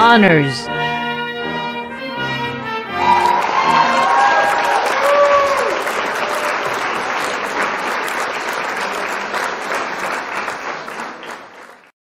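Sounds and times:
crowd applause: 0:03.0 - 0:12.0.

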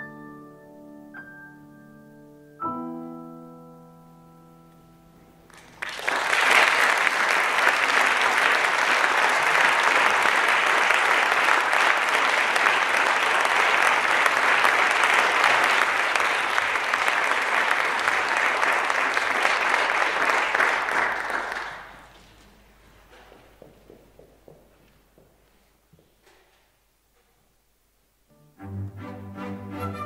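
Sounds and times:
solo piano music: 0:00.0 - 0:05.5
audience applause: 0:05.5 - 0:22.2.

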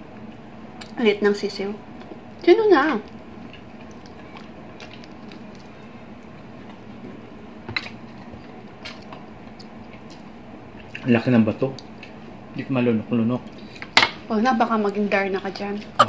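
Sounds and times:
chewing: 0:02.0 - 0:06.8.

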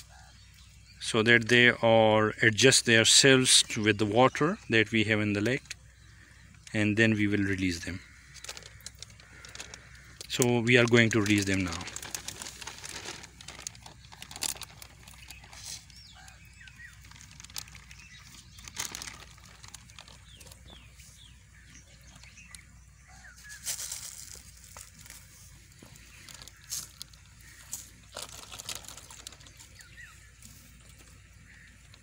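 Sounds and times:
plastic bag crinkling and rustling: 0:08.3 - 0:21.0, 0:23.3 - 0:31.8.

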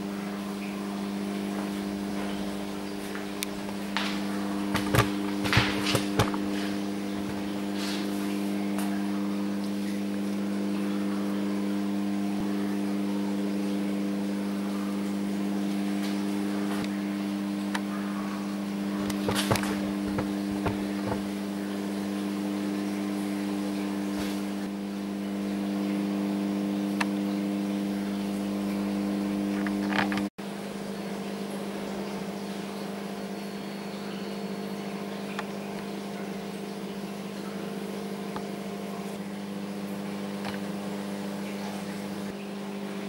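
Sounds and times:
low mechanical hum: 0:00.0 - 0:43.0.

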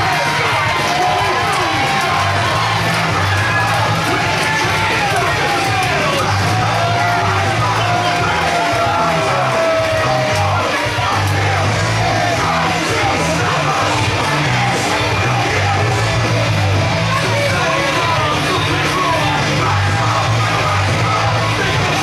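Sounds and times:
crowd yelling: 0:00.0 - 0:22.0
rock music with bass line: 0:00.0 - 0:22.0.

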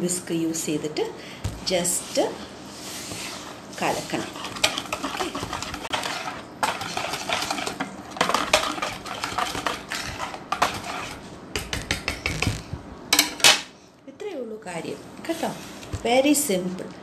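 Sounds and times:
whisk scraping against plastic bowl: 0:01.8 - 0:12.6.

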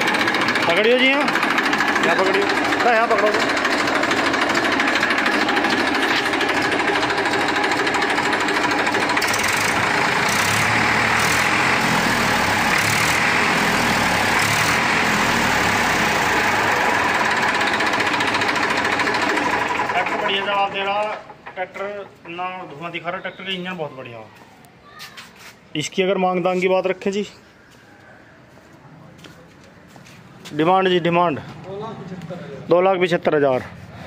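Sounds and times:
tractor diesel engine running: 0:00.0 - 0:22.4.

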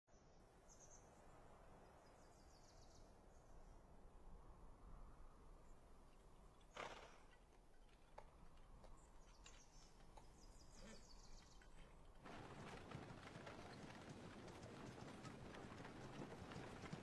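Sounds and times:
horse hoofbeats: 0:06.6 - 0:17.0.

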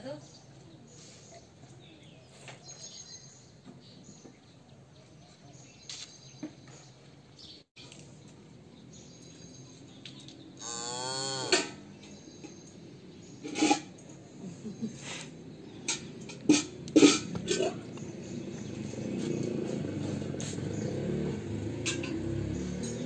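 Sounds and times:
calf mooing: 0:10.6 - 0:11.8.

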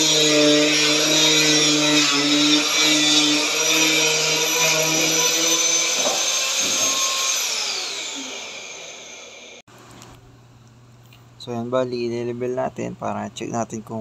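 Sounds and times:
electric cutting tool whining: 0:00.0 - 0:09.6.

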